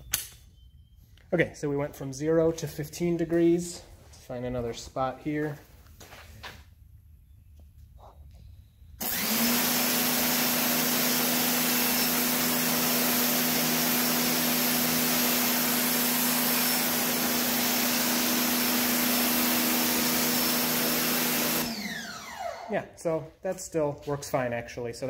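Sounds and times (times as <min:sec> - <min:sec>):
pressure washer motor hum: 0:09.0 - 0:22.7.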